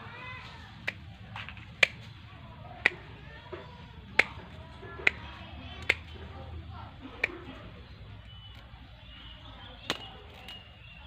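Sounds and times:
pruning shears snipping: 0:00.8 - 0:02.1, 0:04.1 - 0:06.2.

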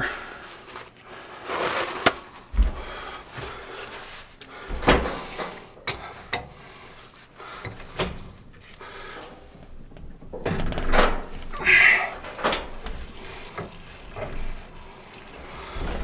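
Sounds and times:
paper towel rustling: 0:00.3 - 0:05.4, 0:06.8 - 0:09.2, 0:11.3 - 0:16.0.

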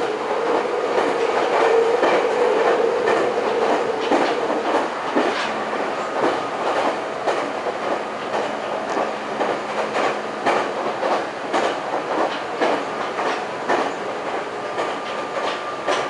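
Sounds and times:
train rolling noise: 0:00.0 - 0:16.0
wheels clacking over rail joints: 0:00.0 - 0:16.0.

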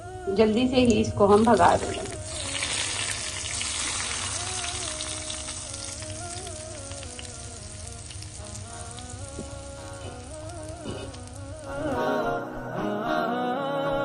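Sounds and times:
hot oil sizzling and crackling: 0:00.7 - 0:12.0.

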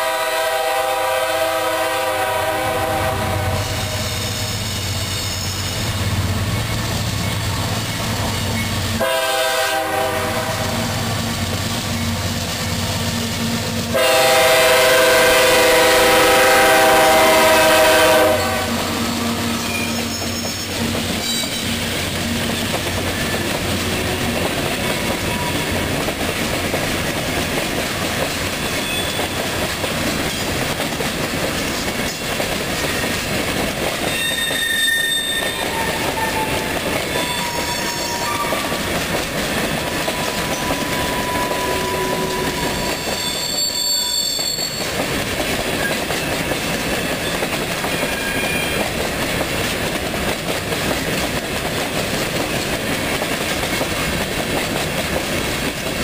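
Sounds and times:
locomotive horn blast: 0:00.0 - 0:04.5, 0:09.0 - 0:11.4, 0:13.9 - 0:20.3, 0:34.1 - 0:38.8, 0:40.1 - 0:43.7
train wheels rumbling on rails: 0:00.0 - 0:56.0
wheel squeals: 0:19.6 - 0:21.9, 0:28.6 - 0:29.4, 0:34.0 - 0:38.8, 0:39.6 - 0:45.1, 0:47.0 - 0:48.9.

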